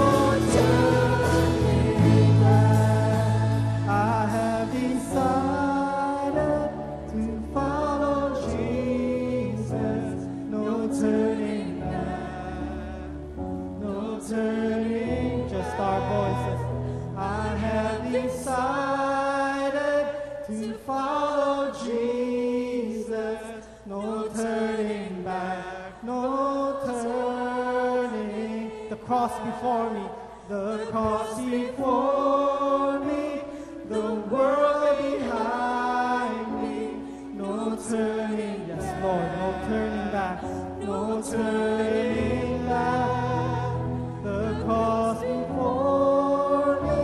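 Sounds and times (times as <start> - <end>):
bass: 0.0 - 19.0, 37.4 - 47.0
group singing worship song: 0.0 - 47.0.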